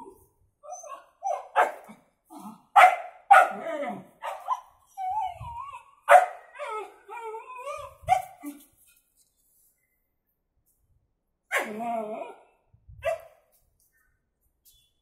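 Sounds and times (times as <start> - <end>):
dog whining: 0.0 - 1.5, 3.5 - 8.6
dog barking: 1.3 - 1.9, 2.8 - 3.6, 4.2 - 4.6, 6.1 - 6.4, 11.5 - 11.8.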